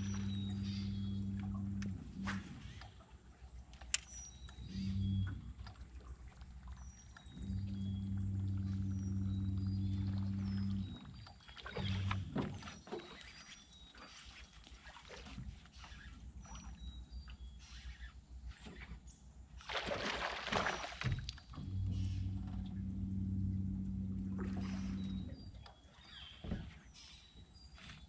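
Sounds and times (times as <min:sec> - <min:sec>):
electric motor humming: 0:00.0 - 0:02.3, 0:07.4 - 0:11.0, 0:21.6 - 0:25.4
faint water noise: 0:00.0 - 0:28.0
loud water splash: 0:19.7 - 0:21.2.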